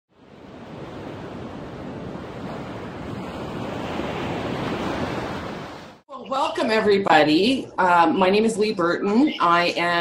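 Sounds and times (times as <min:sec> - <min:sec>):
ocean waves washing ashore: 0:00.1 - 0:06.0.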